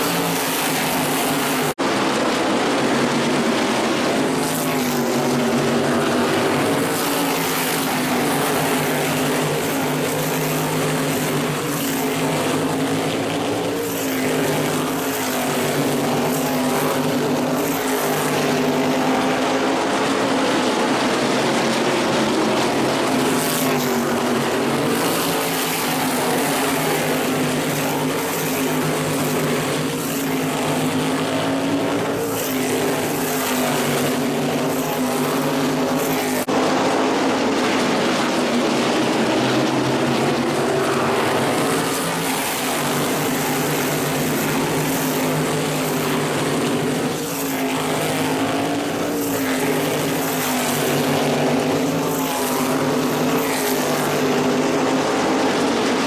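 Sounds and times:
race car engines droning: 0.0s - 56.0s.

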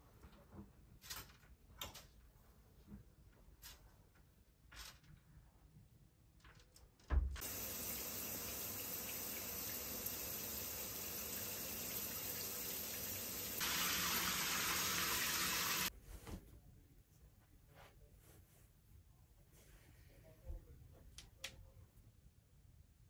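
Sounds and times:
shower head spraying water: 7.4s - 15.9s.

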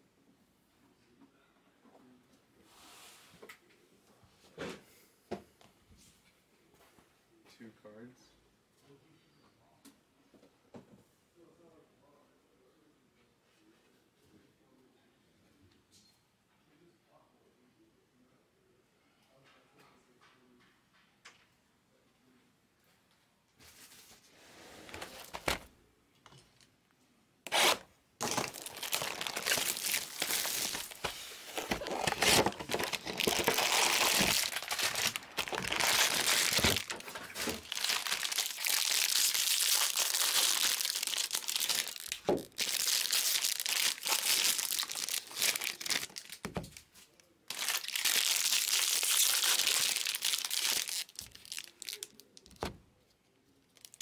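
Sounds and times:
foil wrappers tearing and crinkling: 27.5s - 46.5s, 47.5s - 52.7s.

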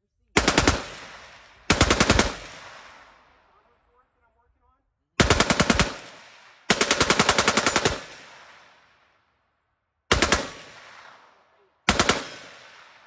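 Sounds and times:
machine gun firing bursts: 0.4s - 3.1s, 5.2s - 8.7s, 10.1s - 11.2s, 11.9s - 13.0s
gunfire echo: 10.1s - 13.0s.

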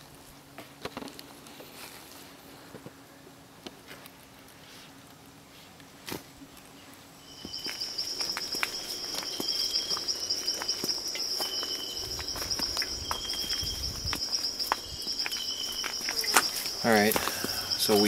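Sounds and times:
lower insect call: 7.1s - 18.0s
insects trilling high: 7.2s - 18.0s
footsteps on a trail: 7.3s - 18.0s.

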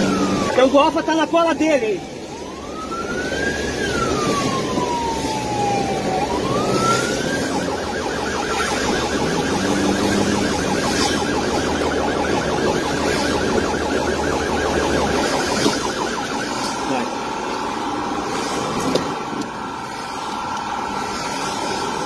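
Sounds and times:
car engine: 0.0s - 0.8s, 2.6s - 22.0s
police siren wailing and yelping: 0.0s - 22.0s
rain: 0.0s - 22.0s.

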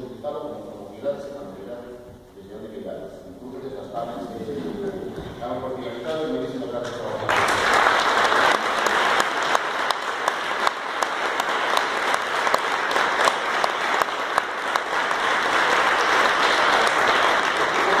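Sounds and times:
audience applauding: 6.8s - 18.0s.

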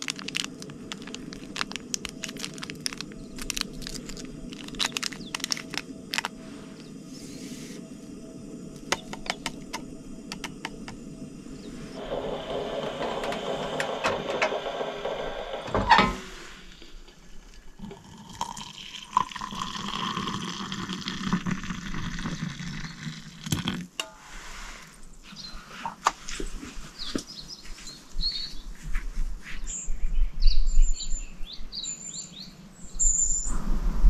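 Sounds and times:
coffee granules ticking into mug: 0.0s - 6.3s, 18.0s - 23.2s
hot water pouring into mug: 17.8s - 23.9s.

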